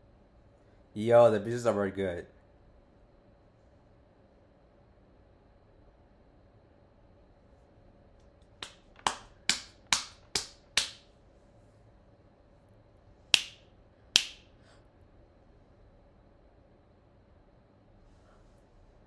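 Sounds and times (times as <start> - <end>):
finger snapping: 8.6 - 11.0, 13.4 - 13.6, 14.2 - 14.5.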